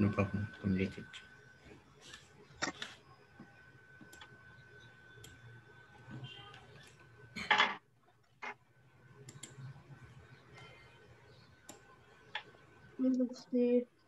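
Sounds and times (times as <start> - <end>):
thin steady whine: 0.0 - 7.8, 8.4 - 14.0
faint steady hum: 0.0 - 14.0
sharp clicks: 9.2 - 9.6.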